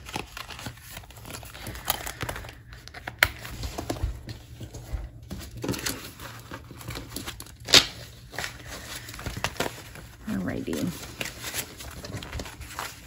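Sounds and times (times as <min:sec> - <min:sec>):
paper banknotes rustling: 0:00.0 - 0:13.0.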